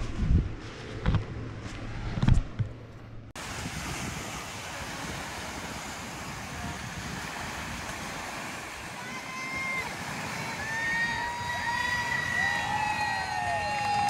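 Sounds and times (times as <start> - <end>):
steady rushing noise: 0.0 - 14.0.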